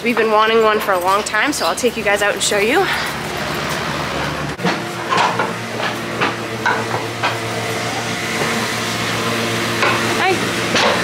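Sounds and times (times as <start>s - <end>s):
chain scraping and clanking: 0.0s - 4.3s
motor hum: 0.0s - 11.0s.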